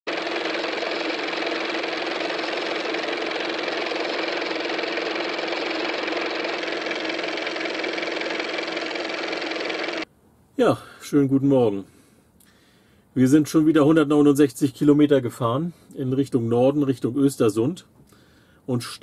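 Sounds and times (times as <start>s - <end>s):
film projector clatter: 0.1s - 10.0s
projector hum: 0.1s - 10.1s.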